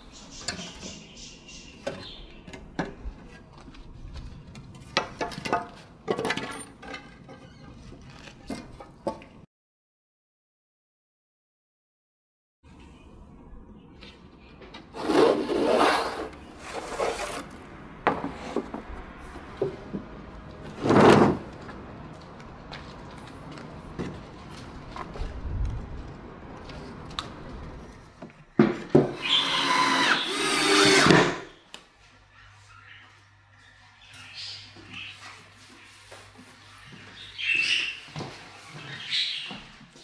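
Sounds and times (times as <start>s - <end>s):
rubbing and scraping wood: 14.9s - 20.0s.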